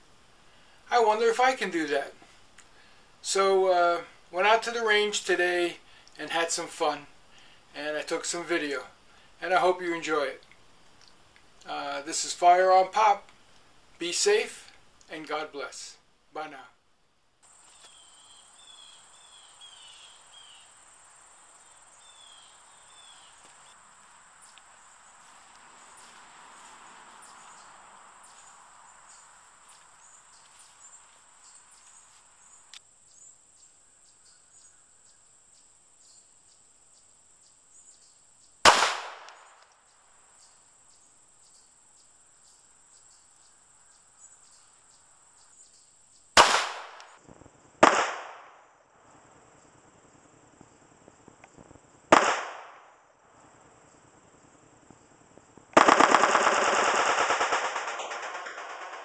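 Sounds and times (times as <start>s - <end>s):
high insect buzz: 17.4s - 46.4s
pistol shots: 38.7s - 39.6s, 46.4s - 47.1s, 47.8s - 48.6s, 52.1s - 52.9s, 55.8s - 59.0s.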